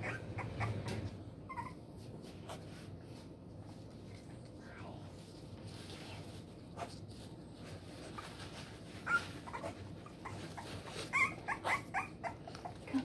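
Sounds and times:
puppies whimpering: 0:00.0 - 0:01.9, 0:08.9 - 0:13.0.

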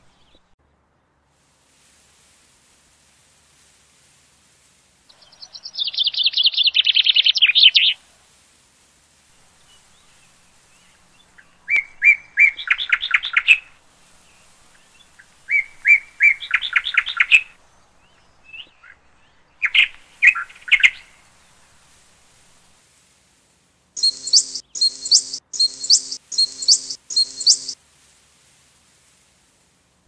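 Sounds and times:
bird singing high trills: 0:24.0 - 0:27.8.

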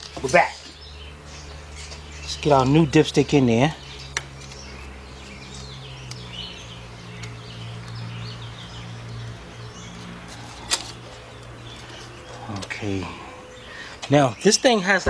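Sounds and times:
birds chirping: 0:00.0 - 0:15.0
steady low hum: 0:00.0 - 0:15.0.

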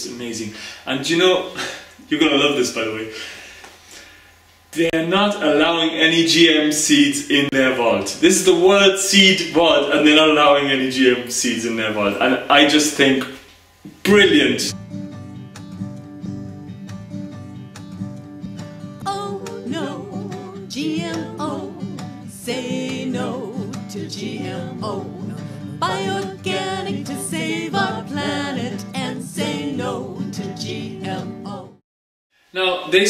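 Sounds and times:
guitar accompaniment: 0:13.9 - 0:31.8
person singing: 0:19.1 - 0:31.8.

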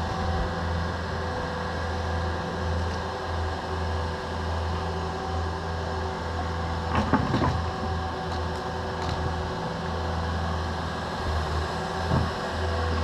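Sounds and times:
diesel engine running: 0:00.0 - 0:13.0
excavator bucket clanking: 0:06.9 - 0:07.9.

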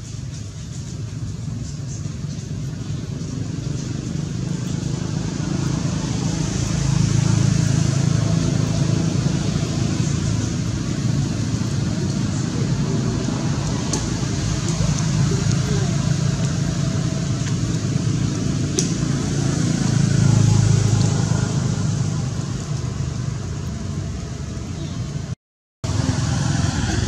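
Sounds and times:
engine rumbling: 0:00.0 - 0:27.0
faint voices: 0:02.6 - 0:18.2.

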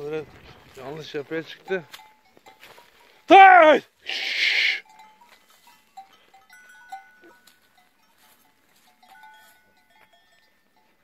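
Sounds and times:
livestock bells clinking: 0:00.0 - 0:11.0
person hissing shh: 0:04.0 - 0:04.8.

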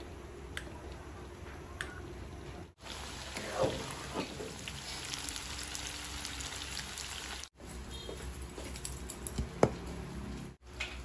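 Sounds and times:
tofu sizzling in oil: 0:02.8 - 0:07.5.

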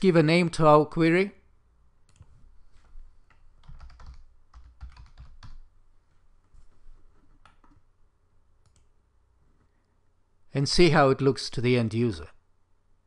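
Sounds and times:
computer keyboard typing: 0:02.1 - 0:02.4, 0:03.3 - 0:05.7, 0:07.1 - 0:07.8, 0:08.6 - 0:08.9.

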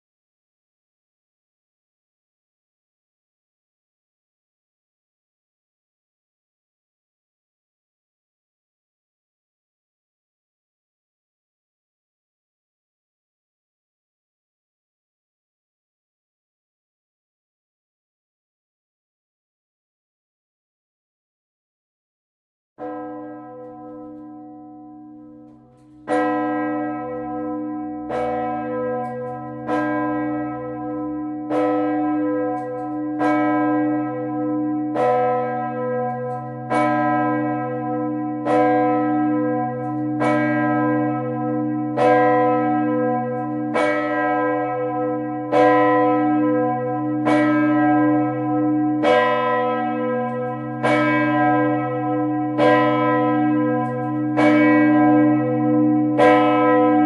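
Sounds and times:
church bell ringing: 0:22.8 - 0:57.0.

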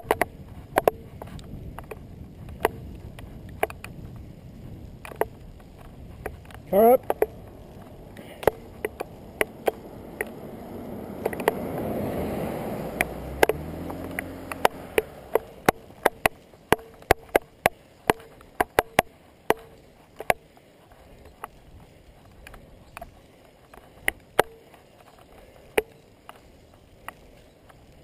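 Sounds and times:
car passing by: 0:09.8 - 0:15.6.

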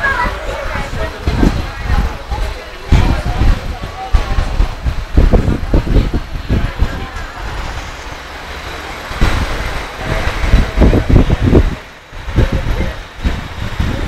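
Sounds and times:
hiss of passing vehicles: 0:00.0 - 0:14.0
wind buffeting microphone: 0:00.0 - 0:14.0.

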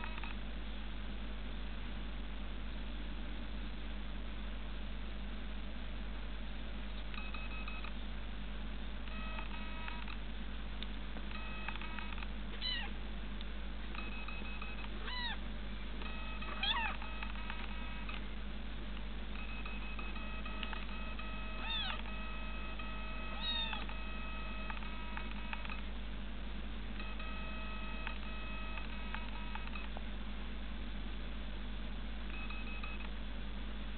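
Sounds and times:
low hum: 0:00.0 - 0:33.9
kitten meowing: 0:12.6 - 0:13.0, 0:15.0 - 0:15.4, 0:16.5 - 0:17.1, 0:21.6 - 0:22.1, 0:23.3 - 0:24.0
flat steady tones: 0:13.8 - 0:15.4, 0:16.0 - 0:30.0.

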